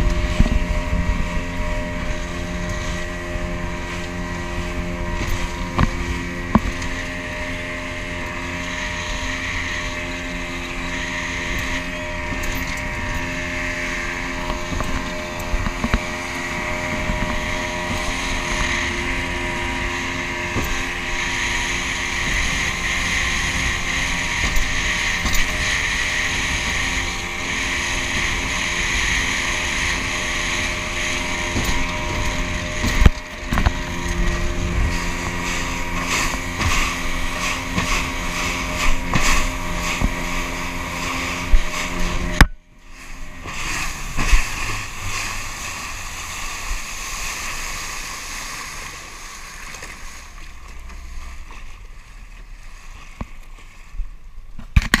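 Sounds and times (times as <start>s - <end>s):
wind buffeting microphone: 0.0s - 47.1s
motorboat engine running: 0.0s - 55.0s
hull knocking on water: 3.6s - 6.9s.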